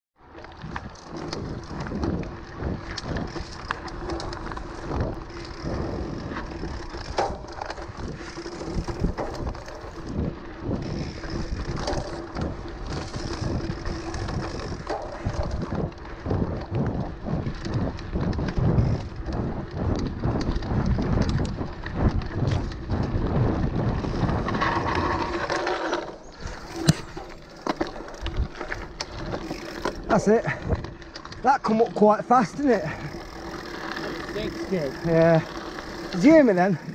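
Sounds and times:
bike knocking and rattling: 0:00.2 - 0:36.9
bike tyres rumbling on dirt: 0:00.2 - 0:36.9
wind on microphone: 0:00.6 - 0:25.6.

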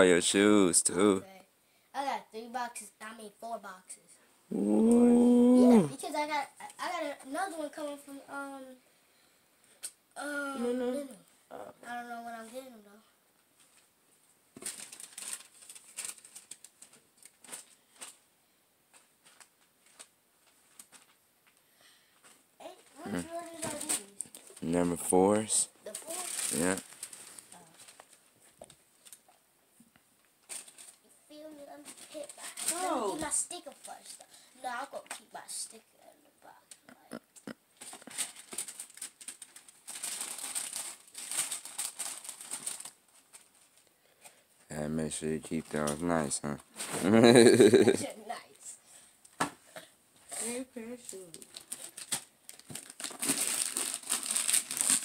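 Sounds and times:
paper packaging crinkling: 0:14.6 - 0:18.2, 0:18.9 - 0:21.2, 0:22.2 - 0:29.3, 0:30.4 - 0:31.0, 0:31.8 - 0:34.2, 0:37.8 - 0:43.8, 0:50.8 - 0:55.0.

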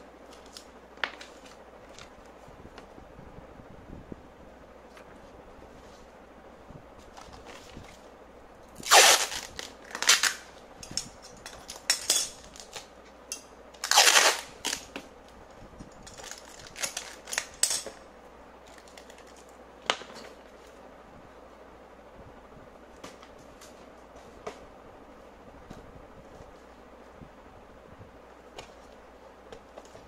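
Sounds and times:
tape and cardboard crackling: 0:00.2 - 0:03.0, 0:07.0 - 0:08.1, 0:08.7 - 0:13.2, 0:13.8 - 0:15.4, 0:16.0 - 0:18.0, 0:18.6 - 0:20.8, 0:28.5 - 0:30.0
packing tape ripping off roll: 0:08.8 - 0:10.5, 0:13.8 - 0:14.9, 0:16.1 - 0:17.6.

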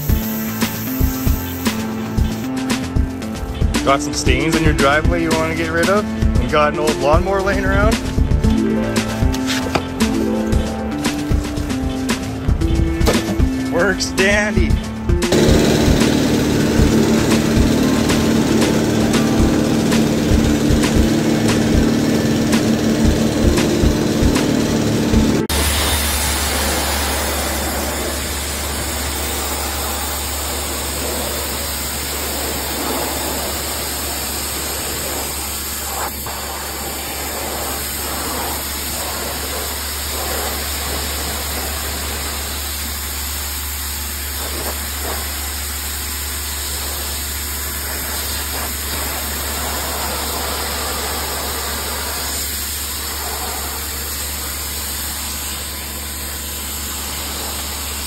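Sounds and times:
water jet hissing on wood: 0:00.0 - 0:02.8, 0:15.3 - 0:58.0
low machine hum: 0:12.5 - 0:33.6.

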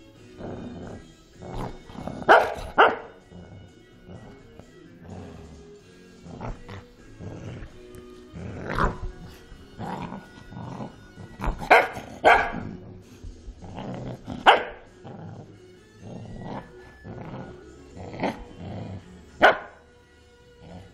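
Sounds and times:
dog growling and barking: 0:00.2 - 0:19.8, 0:20.5 - 0:20.9.

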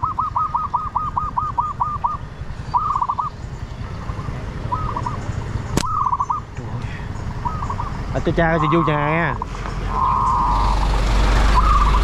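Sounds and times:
animal chirping: 0:00.0 - 0:12.0
sharp snap: 0:05.7 - 0:05.9.

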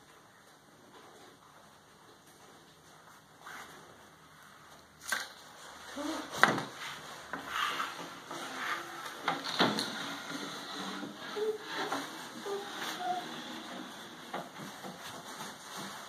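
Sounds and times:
chair scraping on wooden floor: 0:05.9 - 0:16.0.

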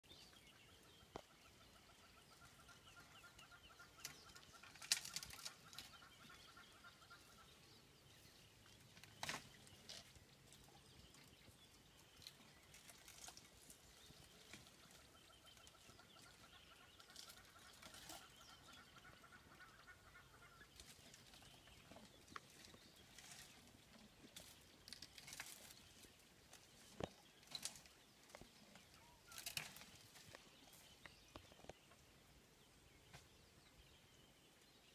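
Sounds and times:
branches snapping and cracking: 0:04.0 - 0:05.9, 0:09.0 - 0:10.0, 0:24.4 - 0:25.8, 0:26.5 - 0:28.5, 0:29.2 - 0:30.4.

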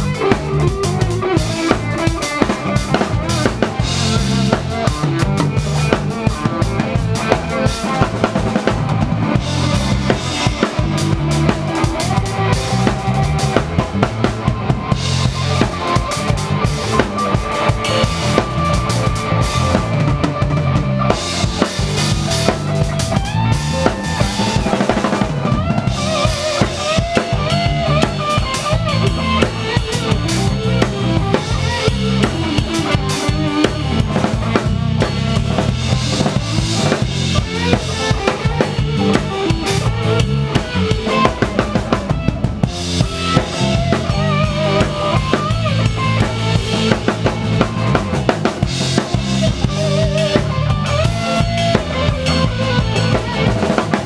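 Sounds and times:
drum kit: 0:00.0 - 0:54.0
live band playing reggae: 0:00.0 - 0:54.0.

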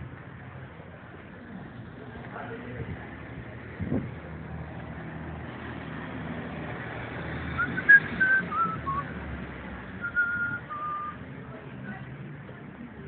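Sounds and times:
street traffic: 0:00.0 - 0:13.0
person whistling a tune: 0:07.6 - 0:09.1, 0:10.0 - 0:11.2.

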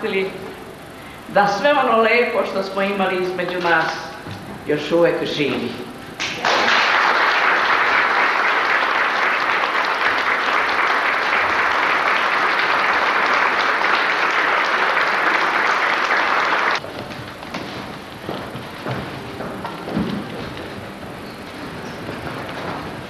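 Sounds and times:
audience applauding: 0:06.2 - 0:16.8.

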